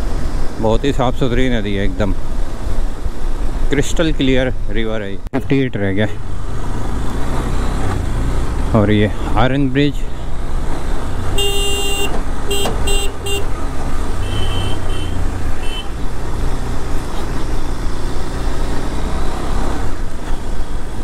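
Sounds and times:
motorcycle engine and road noise: 0.0s - 21.0s
vehicle horn honking: 11.3s - 13.6s, 14.2s - 16.0s.

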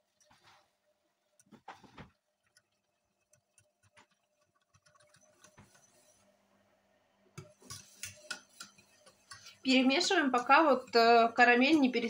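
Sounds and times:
metal whisk tapping a saucepan: 7.4s - 12.0s.

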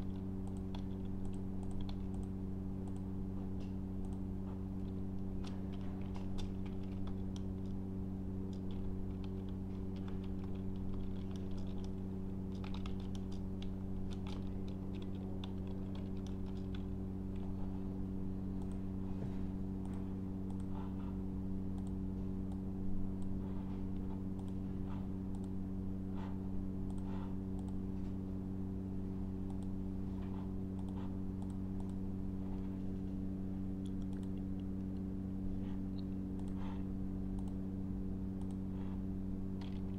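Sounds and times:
steady low hum: 0.0s - 39.9s
keyboard typing: 4.8s - 7.8s, 8.4s - 17.5s.

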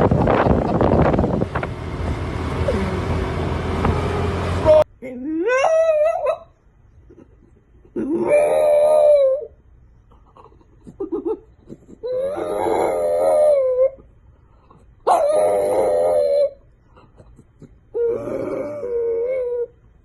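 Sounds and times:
dog howling: 8.0s - 9.6s, 12.0s - 14.0s, 15.1s - 16.6s, 18.0s - 19.8s.

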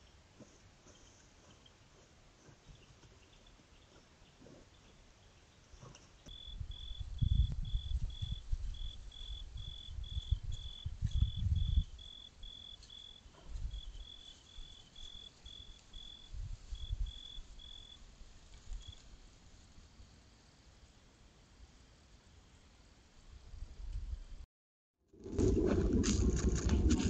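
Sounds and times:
cricket chirping: 6.2s - 19.1s.

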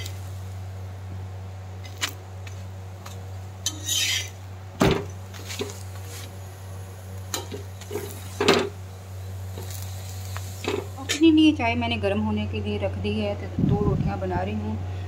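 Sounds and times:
metal spatula scraping pan: 3.6s - 4.4s.

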